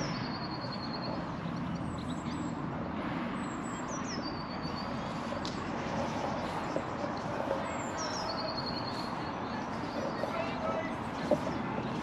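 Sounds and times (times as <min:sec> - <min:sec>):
songbird singing rapid trills: 0:03.4 - 0:10.3.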